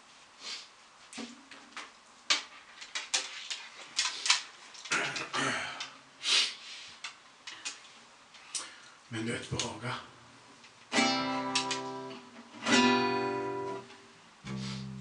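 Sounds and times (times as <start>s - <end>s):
short hissing sounds: 0.4s - 0.8s, 6.2s - 7.2s, 14.4s - 15.0s
guitarist settling acoustic guitar: 10.9s - 15.0s.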